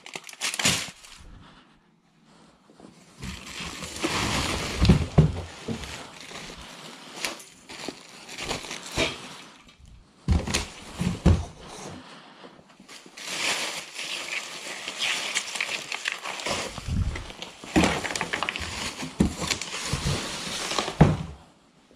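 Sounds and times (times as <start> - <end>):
cardboard packaging handled: 0.0 - 1.2, 3.1 - 9.6, 12.8 - 21.4
plastic wrap crinkling: 0.0 - 1.4, 3.1 - 11.3, 12.8 - 21.1.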